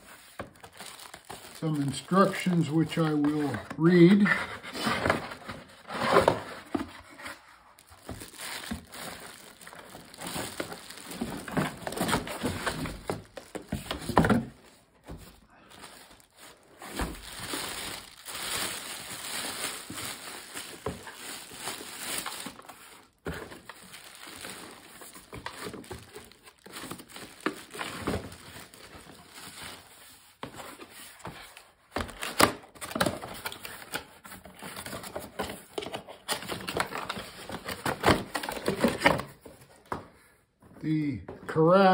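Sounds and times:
plastic wrapping crinkling: 0.0 - 4.1, 6.2 - 30.5
cardboard packaging rustling: 0.0 - 40.0.

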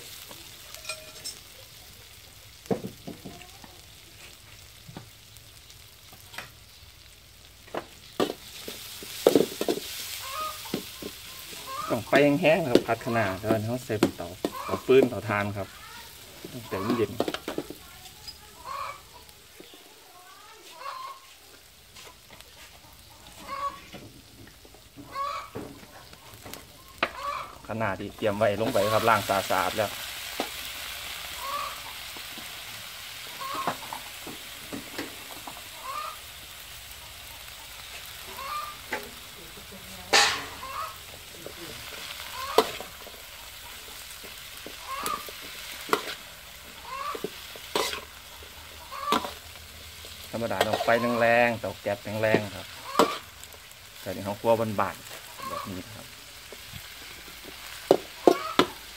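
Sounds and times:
faint sizzle of frying: 0.0 - 58.9
metal spatula scraping a wok: 0.1 - 1.5, 8.1 - 18.5, 40.0 - 54.3
chicken clucking: 10.2 - 12.2, 16.6 - 17.2, 18.2 - 19.8, 20.6 - 24.0, 25.0 - 27.6, 31.4 - 32.0, 33.3 - 34.1, 35.2 - 36.2, 37.0 - 39.1, 40.3 - 41.0, 42.3 - 44.0, 44.7 - 45.3, 46.7 - 49.4, 55.2 - 56.1, 58.2 - 58.8.

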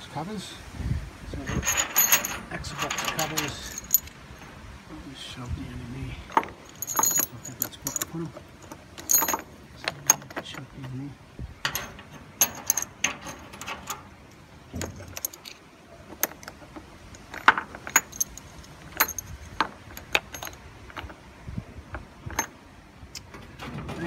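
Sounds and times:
metal castings clinking: 1.4 - 4.6, 6.3 - 10.9, 11.6 - 21.2.

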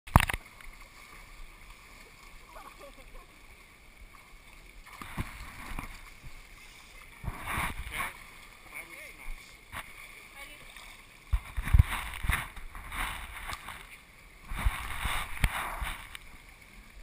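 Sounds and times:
pool water sloshing and splashing: 0.1 - 17.0
faint voices of swimmers: 1.8 - 3.9, 6.4 - 11.2.

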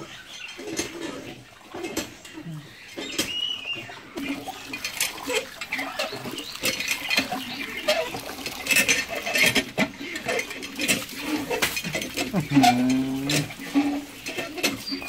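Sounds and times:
water splashing: 4.2 - 15.0.

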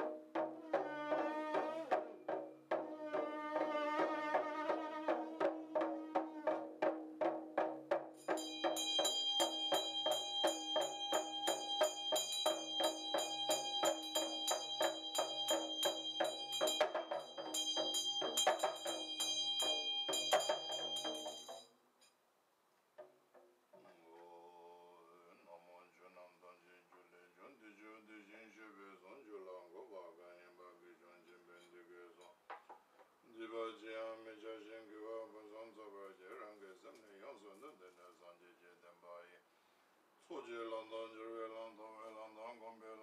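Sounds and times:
bone trumpet blowing: 0.0 - 2.1, 2.8 - 6.8
hand drum rattling: 4.4 - 21.7
hand bell ringing: 8.2 - 21.7.

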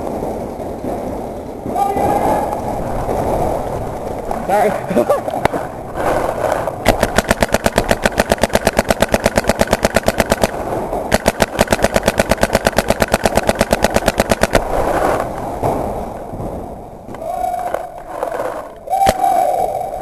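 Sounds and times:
paintball marker firing rapidly: 5.4 - 15.4, 17.7 - 19.4.

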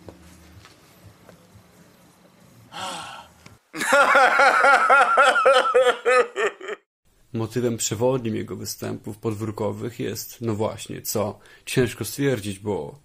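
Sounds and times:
man laughing loudly: 3.8 - 6.9.

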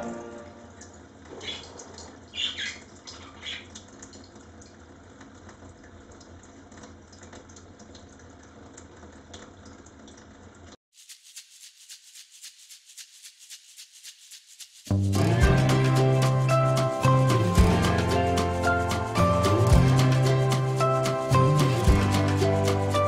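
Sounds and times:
background music: 0.0 - 0.8, 14.9 - 23.0
shaker-like rattle: 10.9 - 23.0.

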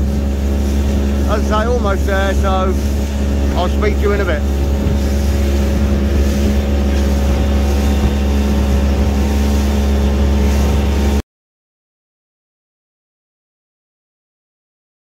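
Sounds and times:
motorboat engine humming: 0.0 - 11.2.

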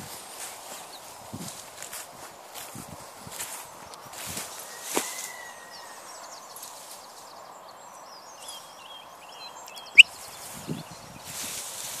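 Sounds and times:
birds singing: 4.6 - 11.6.

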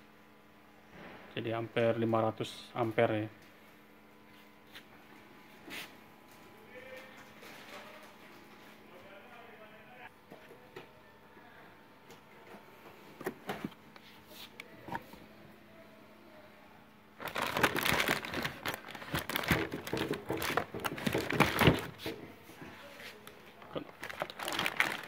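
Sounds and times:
plastic packaging crinkling: 17.2 - 22.1, 23.6 - 25.0.

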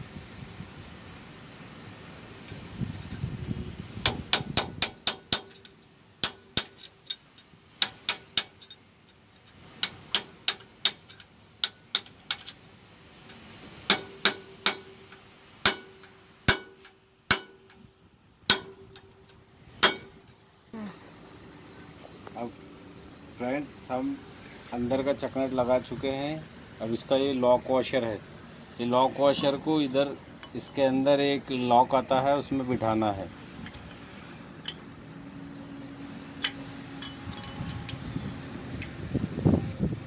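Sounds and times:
hammer striking metal: 4.0 - 7.2, 7.8 - 8.8, 13.9 - 17.8, 18.5 - 19.2, 19.8 - 20.2
faint metallic ring: 36.3 - 38.3.

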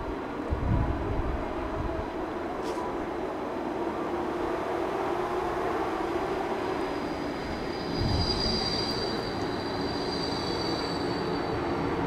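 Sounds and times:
tram passing rumble: 0.0 - 12.0
high wheel squeal: 6.9 - 11.8.

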